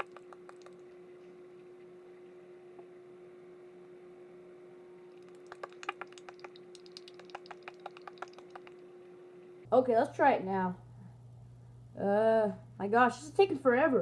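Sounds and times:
faint steady hum: 0:00.0 - 0:14.0
plastic toy egg clicking: 0:05.3 - 0:08.7.

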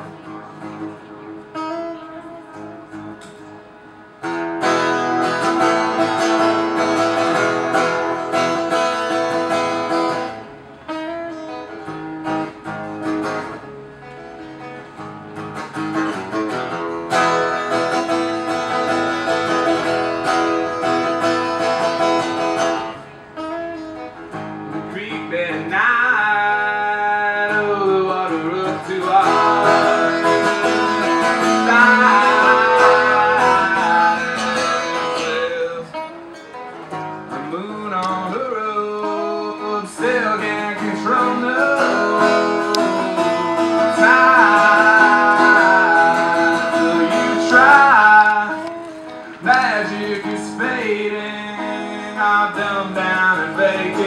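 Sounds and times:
acoustic guitar strumming: 0:00.0 - 0:54.0
person singing wordlessly: 0:24.9 - 0:36.1, 0:37.5 - 0:48.8, 0:49.4 - 0:54.0.

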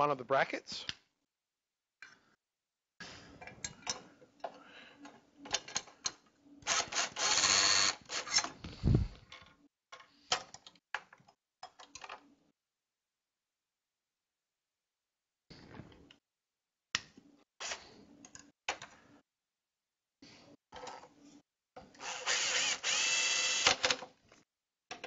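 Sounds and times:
cordless drill driving a screw: 0:06.6 - 0:08.5, 0:22.0 - 0:24.0
clicks and knocks of handling: 0:23.8 - 0:25.0.

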